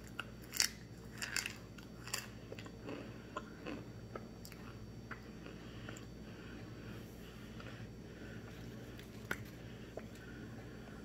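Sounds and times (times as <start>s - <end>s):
chewing crunches: 0.0s - 6.1s.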